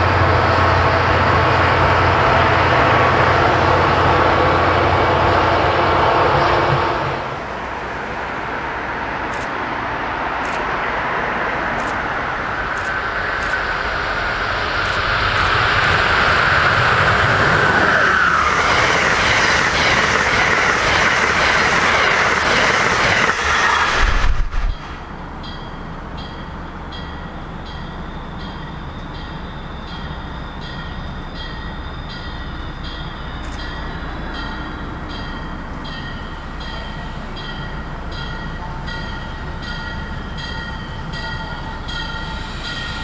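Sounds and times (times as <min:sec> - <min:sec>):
distant train rumble: 0:00.0 - 0:43.0
passenger train passing at speed: 0:00.0 - 0:43.0
clicking train wheels: 0:09.0 - 0:25.2, 0:26.9 - 0:43.0.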